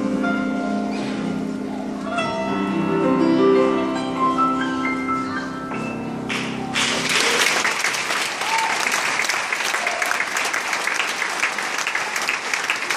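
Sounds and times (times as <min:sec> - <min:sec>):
audience applause: 0:06.3 - 0:12.9.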